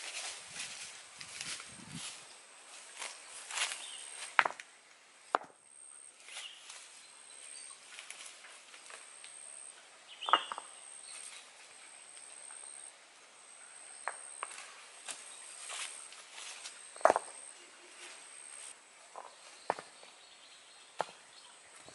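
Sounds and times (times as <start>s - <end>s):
stones knocking on stony ground: 4.3s - 4.6s, 5.3s - 5.6s, 10.2s - 10.7s, 14.0s - 14.6s, 17.0s - 17.4s, 19.1s - 20.0s, 21.0s - 21.2s
faint high whine: 5.6s - 18.8s.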